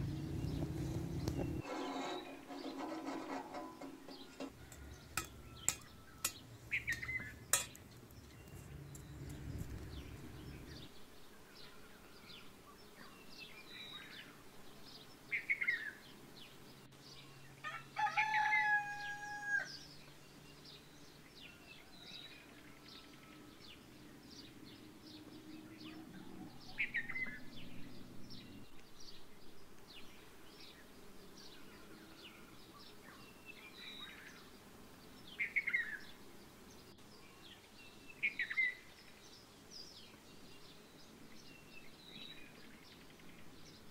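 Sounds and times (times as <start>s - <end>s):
small birds chirping: 0.0s - 43.9s
rooster crowing: 3.5s - 7.3s, 17.6s - 19.8s.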